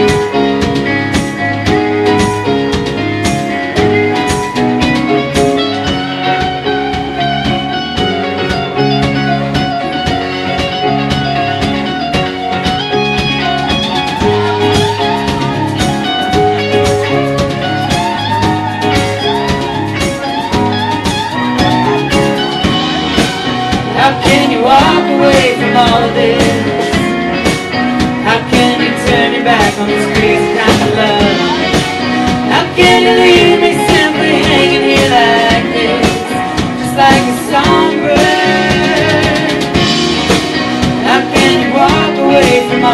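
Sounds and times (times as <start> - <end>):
live band playing: 0.0 - 42.9
lead melody bending in pitch: 4.0 - 26.2.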